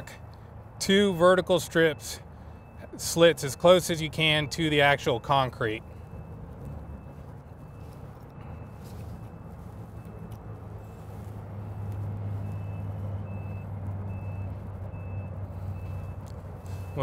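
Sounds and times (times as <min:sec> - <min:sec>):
heavy vehicle engine running: 0:00.0 - 0:17.0
reversing alarm beeping: 0:00.8 - 0:17.0.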